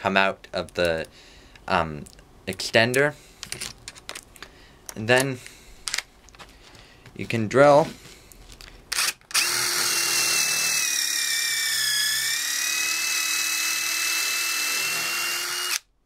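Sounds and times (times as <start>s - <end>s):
impact driver drilling into wood: 8.9s - 15.9s.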